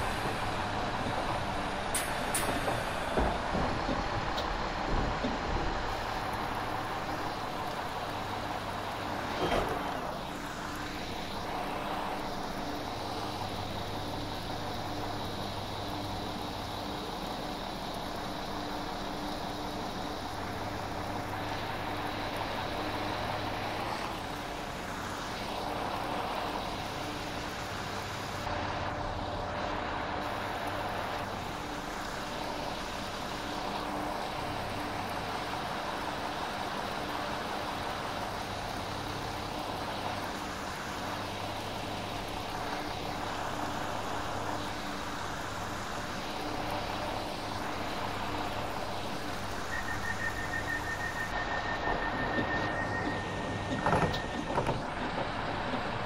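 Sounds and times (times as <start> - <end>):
diesel train engine hum: 0.0 - 56.0
wheel and rail noise: 0.0 - 56.0
steady high tone: 49.6 - 53.7.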